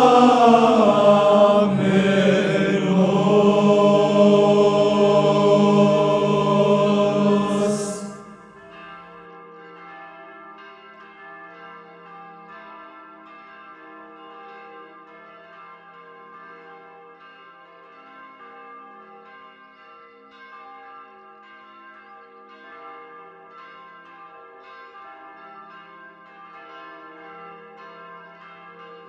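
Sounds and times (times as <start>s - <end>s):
church bells ringing: 0.0s - 8.6s.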